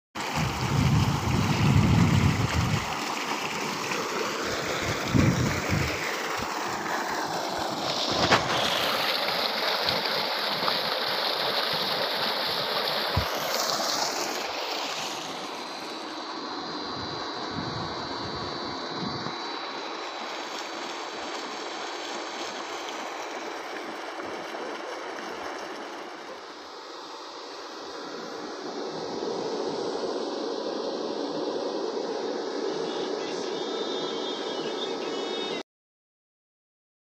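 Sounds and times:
water gushing into a tank: 0:00.2 - 0:16.3, 0:19.6 - 0:26.7.

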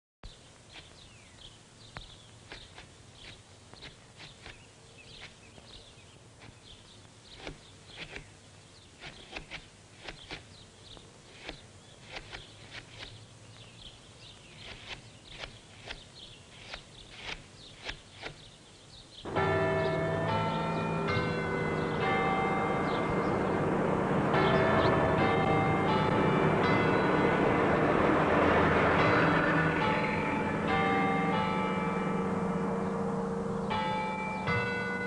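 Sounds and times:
birds chirping: 0:00.2 - 0:35.0
loud bells ringing: 0:19.3 - 0:35.0.

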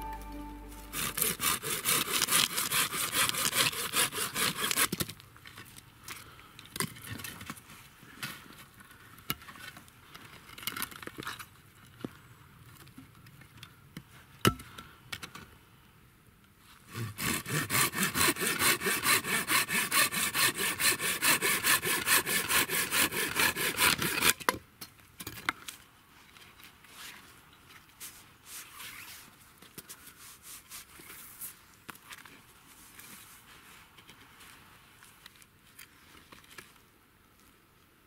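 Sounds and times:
saw cutting through branch: 0:00.9 - 0:05.0, 0:16.9 - 0:24.4.

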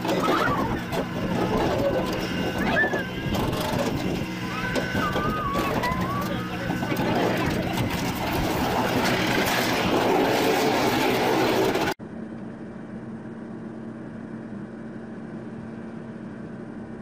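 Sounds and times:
truck engine humming: 0:00.0 - 0:13.5
bulldozer running loud: 0:00.0 - 0:17.0.

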